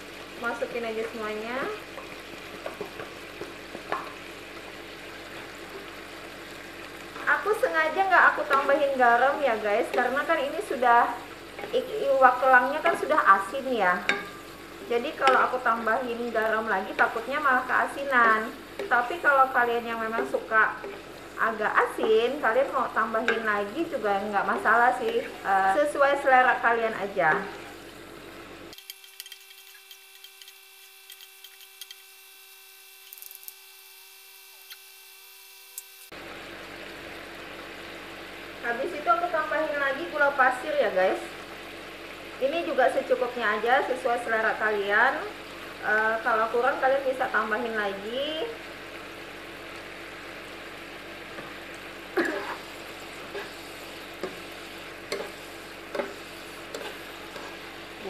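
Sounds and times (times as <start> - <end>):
electrical hum: 0.0 - 58.0
food sizzling in a wok: 0.0 - 58.0
spatula tapping a wok: 1.9 - 4.2, 14.0 - 14.4, 18.2 - 19.0, 54.2 - 54.5, 55.1 - 57.5
spoon scraping a pan: 14.0 - 15.6, 28.8 - 32.1, 52.3 - 57.8.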